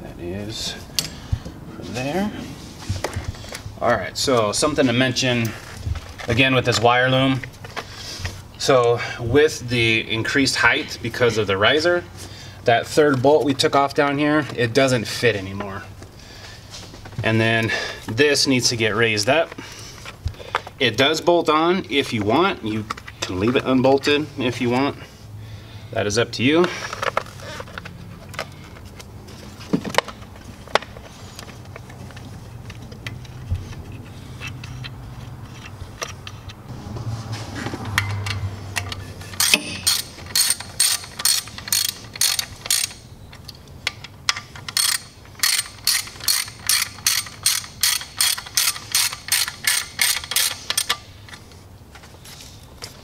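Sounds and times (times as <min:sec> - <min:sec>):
low steady hum: 0:24.4 - 0:47.8
hand ratchet clicking: 0:38.1 - 0:51.0.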